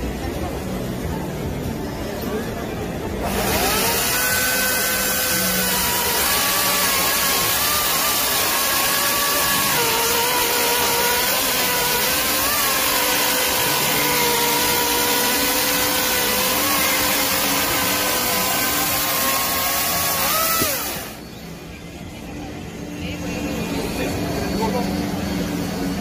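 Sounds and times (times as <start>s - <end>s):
electric chainsaw motor whine: 3.2s - 21.2s.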